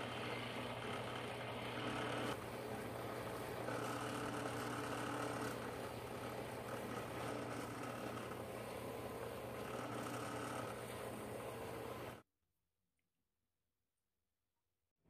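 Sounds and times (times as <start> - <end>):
buffing wheel whirring: 0.0 - 12.2
motor hum: 0.0 - 12.2.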